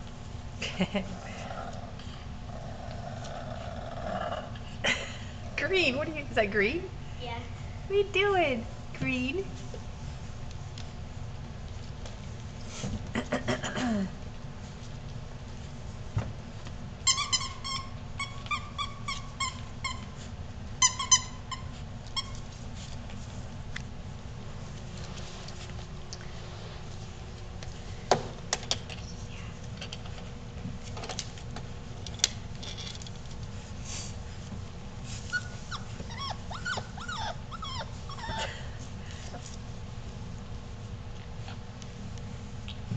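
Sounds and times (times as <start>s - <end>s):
puppy whimpering yelps: 35.3s - 38.6s.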